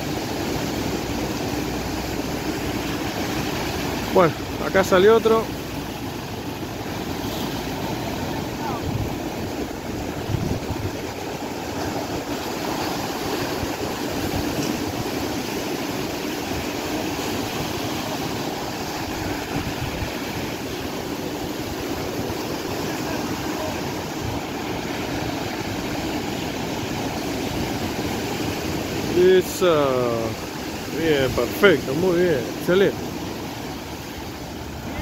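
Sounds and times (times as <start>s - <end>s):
sea surf breaking on beach: 0.0s - 35.0s.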